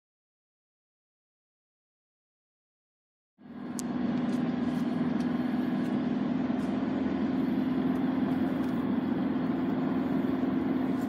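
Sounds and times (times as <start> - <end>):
car engine hum: 3.4 - 11.0
road noise: 3.4 - 11.0.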